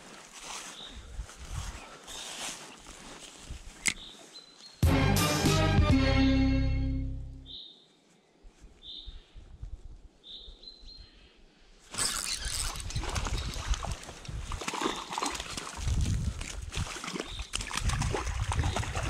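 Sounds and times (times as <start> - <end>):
bird chirp: 7.4 - 8.0.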